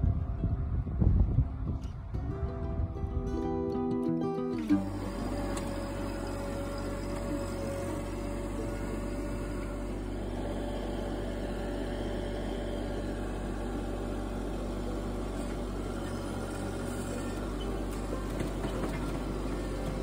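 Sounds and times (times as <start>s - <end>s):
tractor diesel engine running: 4.6s - 20.0s.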